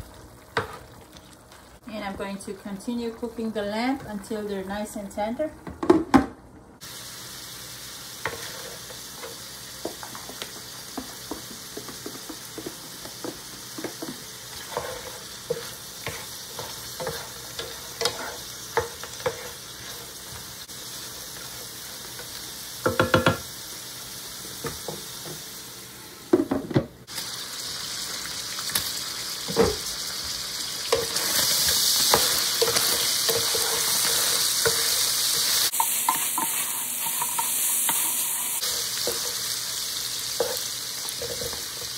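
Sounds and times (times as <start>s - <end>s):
meat sizzling in a skillet: 6.8s - 26.1s, 27.0s - 41.9s
wooden spoon scraping a pan: 8.2s - 9.4s, 11.0s - 20.4s, 30.9s - 39.4s.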